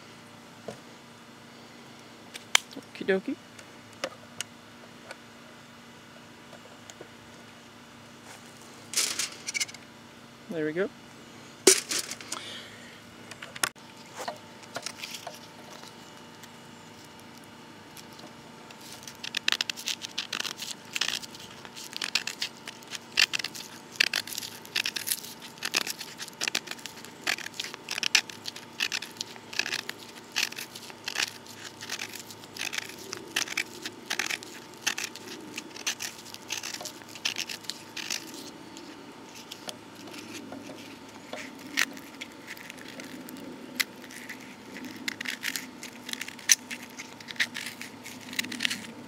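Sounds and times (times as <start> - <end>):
bark being torn by hand: 17.0 - 49.0.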